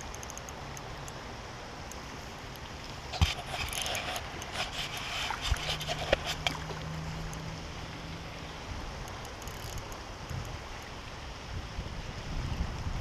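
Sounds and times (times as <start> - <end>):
wind buffeting microphone: 11.4 - 13.0.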